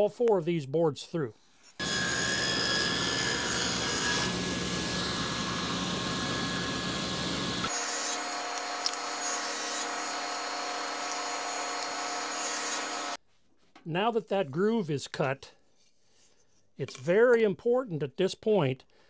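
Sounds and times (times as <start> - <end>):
table saw motor whine: 1.8 - 13.2.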